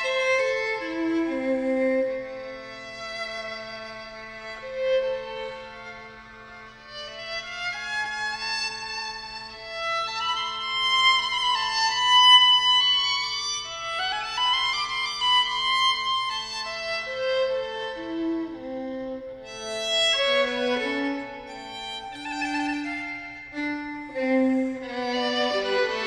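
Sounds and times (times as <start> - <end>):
violin duet: 0.0 - 26.0.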